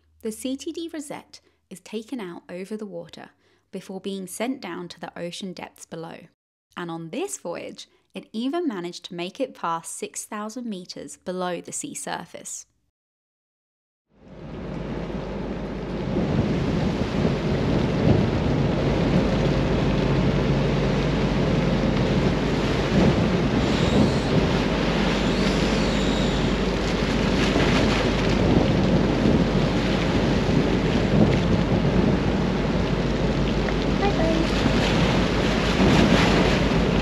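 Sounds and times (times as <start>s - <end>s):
low machinery hum: 14.2s - 37.0s
wind and water rushing: 14.2s - 37.0s.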